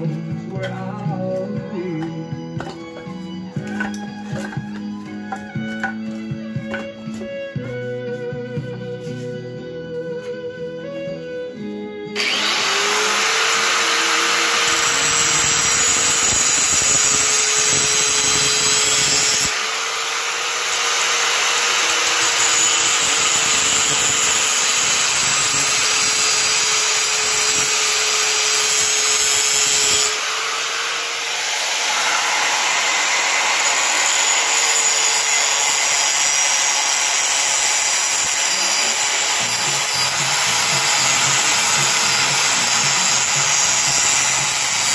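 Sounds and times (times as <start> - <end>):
grinder grinding steel: 0.0 - 9.4, 12.1 - 44.9
angle grinder motor whine: 11.1 - 44.9.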